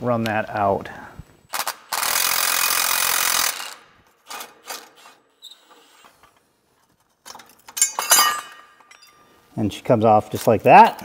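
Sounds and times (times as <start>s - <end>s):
sharp metal clink: 7.8s - 9.3s.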